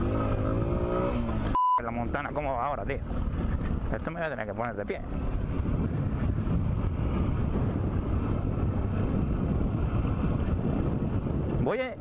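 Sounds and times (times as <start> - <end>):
wind noise on microphone: 2.9 - 4.3, 5.0 - 12.0.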